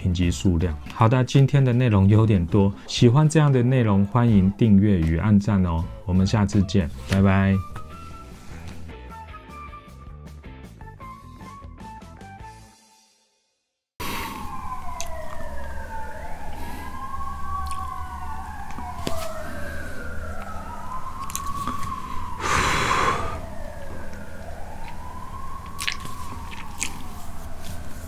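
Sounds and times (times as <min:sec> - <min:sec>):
emergency siren wailing: 0:00.0 - 0:08.6, 0:14.0 - 0:28.0
loud rush of noise: 0:22.4 - 0:23.6.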